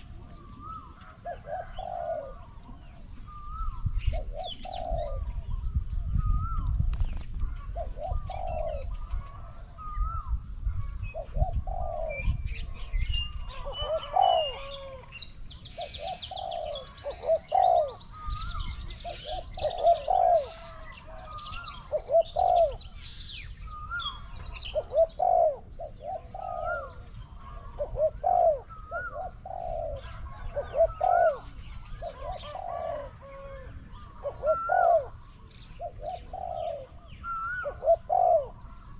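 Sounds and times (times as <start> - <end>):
doves cooing: 0.0 - 38.9
small birds chirping: 0.0 - 38.9.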